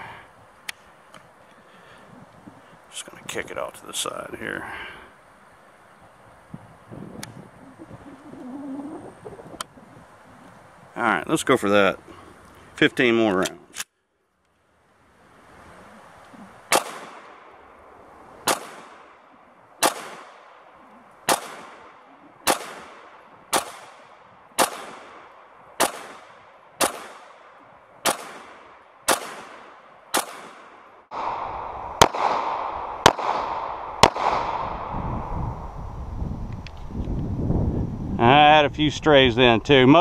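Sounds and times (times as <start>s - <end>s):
steady background hiss: 0.0s - 40.0s
pistol shots: 16.7s - 17.5s, 18.4s - 19.2s, 19.8s - 31.4s, 32.0s - 34.7s.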